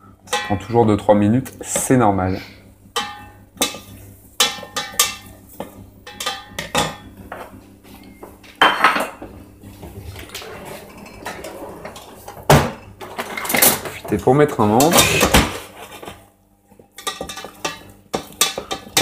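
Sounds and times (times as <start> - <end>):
low hum of induction hob: 0.0 - 19.0
cutlery clinking in a drawer: 13.0 - 14.0.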